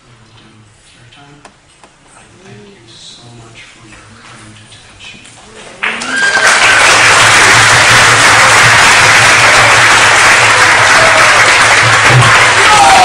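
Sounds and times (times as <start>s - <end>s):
audience applause: 5.8s - 13.0s.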